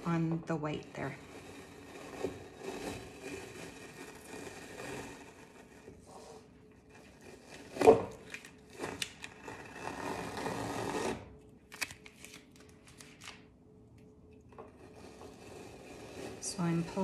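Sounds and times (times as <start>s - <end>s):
tape ripping and peeling: 7.7s - 13.4s.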